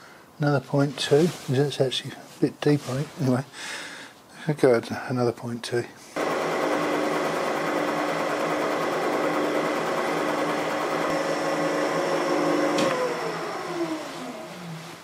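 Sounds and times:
milling machine hum: 0:06.2 - 0:14.8.

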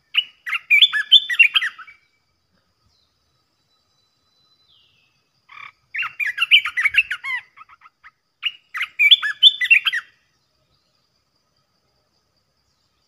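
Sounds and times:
bulbul singing: 0:00.0 - 0:02.3, 0:02.9 - 0:11.0.

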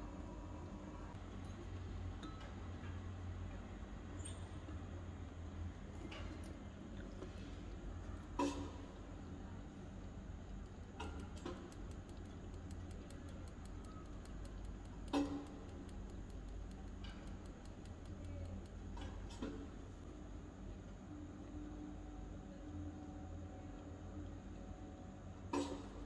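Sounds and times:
low steady hum: 0:00.0 - 0:26.0
faint fast ticking: 0:10.5 - 0:19.0
sugar sprinkling clicks: 0:10.6 - 0:19.0.

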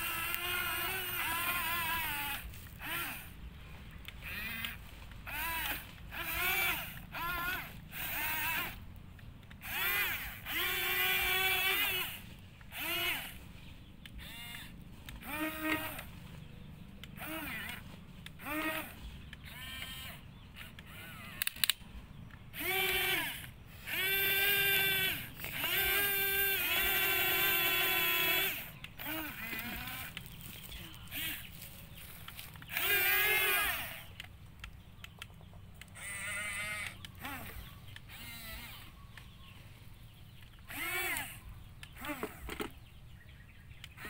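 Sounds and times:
electric gear motors whining: 0:00.0 - 0:44.0
sharp click: 0:21.4 - 0:22.4.

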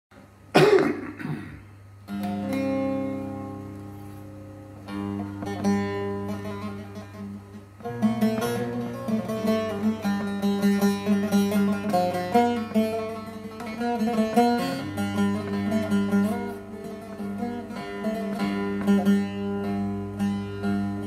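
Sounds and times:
person coughing: 0:00.5 - 0:01.7
long-necked lute strummed: 0:00.6 - 0:21.0.

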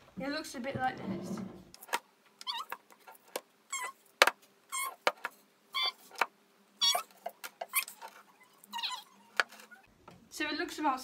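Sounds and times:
short high squeaks: 0:03.7 - 0:04.0, 0:04.7 - 0:05.0, 0:05.7 - 0:06.1, 0:06.8 - 0:09.9.

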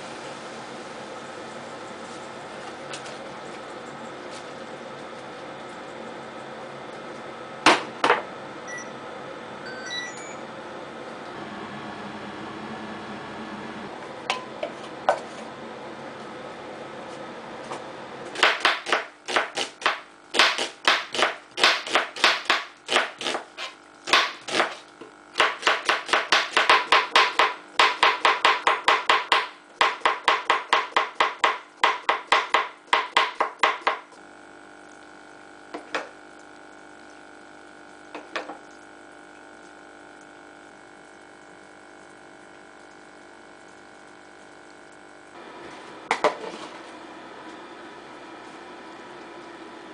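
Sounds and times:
knife chopping on cutting board: 0:18.4 - 0:24.8, 0:25.4 - 0:34.0.

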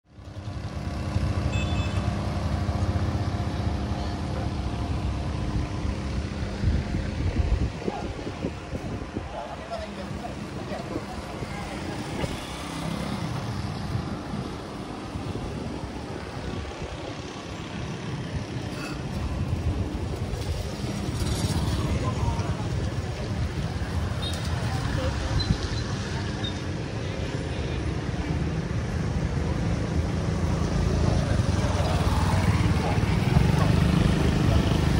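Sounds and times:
low rumble of traffic: 0:00.1 - 0:34.9
murmur of voices: 0:03.8 - 0:14.6, 0:30.8 - 0:34.9.

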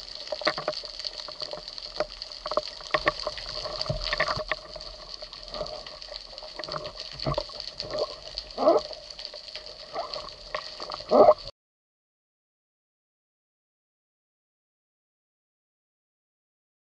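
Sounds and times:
bubbling gurgles: 0:00.0 - 0:11.5.

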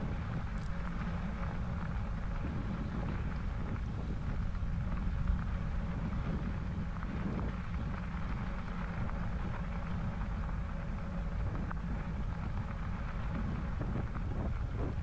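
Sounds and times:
bicycle tyres rolling on wet gravel: 0:00.0 - 0:15.0
wind rumble on microphone: 0:00.0 - 0:15.0.

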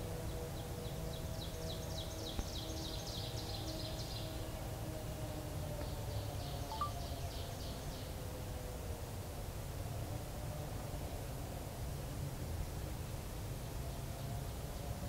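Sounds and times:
songbird trilling: 0:06.7 - 0:07.1.

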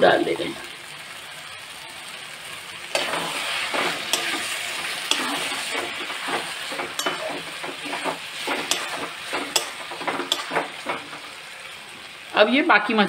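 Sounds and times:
frying sizzle: 0:00.0 - 0:13.0
spatula scraping metal pan: 0:03.0 - 0:11.3
spatula clicking against pan: 0:08.6 - 0:10.7.

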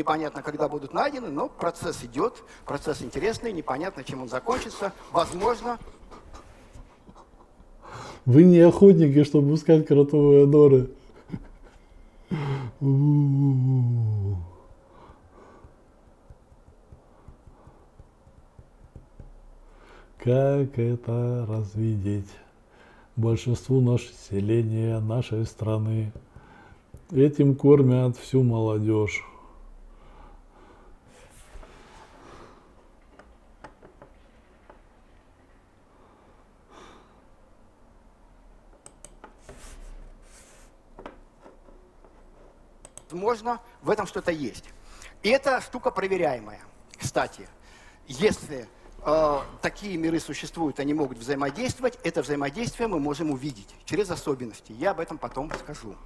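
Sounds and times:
faint breathing: 0:02.4 - 0:02.7, 0:07.8 - 0:08.3, 0:11.0 - 0:16.4, 0:17.0 - 0:18.1, 0:19.6 - 0:20.2, 0:22.5 - 0:23.2, 0:26.3 - 0:27.0, 0:29.2 - 0:32.9, 0:35.8 - 0:37.4, 0:44.7 - 0:45.2, 0:47.5 - 0:48.1
man humming: 0:12.4 - 0:14.8
computer mouse clicks: 0:38.8 - 0:39.4, 0:42.8 - 0:43.2
hand rustling on desk: 0:39.4 - 0:40.9.

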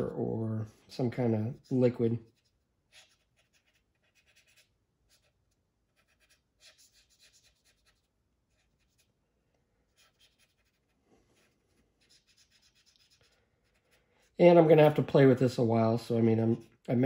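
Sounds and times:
cotton swab rubbing plastic: 0:01.3 - 0:09.2, 0:09.9 - 0:14.4.

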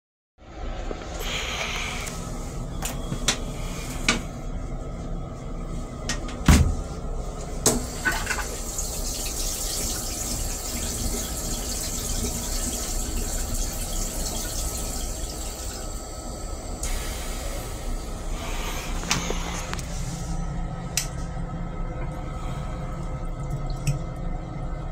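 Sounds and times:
steady low rumble: 0:00.4 - 0:08.0, 0:16.1 - 0:24.9
water rushing into toilet bowl: 0:07.8 - 0:18.0.

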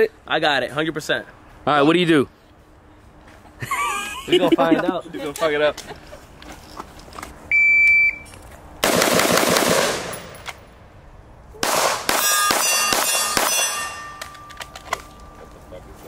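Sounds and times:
shot timer beep: 0:07.5 - 0:08.3
rifle shots: 0:08.8 - 0:10.4, 0:11.6 - 0:14.0
handgun shots: 0:11.6 - 0:15.0
steel targets ringing: 0:12.1 - 0:15.4.

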